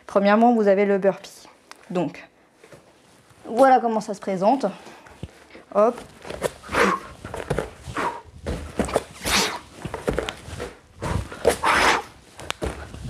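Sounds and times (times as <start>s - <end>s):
soft thuds on foam mats: 7.3s - 9.2s, 9.8s - 11.4s, 12.5s - 13.0s.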